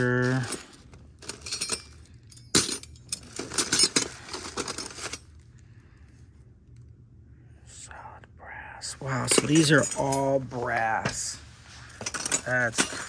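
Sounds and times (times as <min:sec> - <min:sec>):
brass buckles clinking: 0:00.2 - 0:05.3, 0:09.1 - 0:11.2, 0:11.8 - 0:13.0.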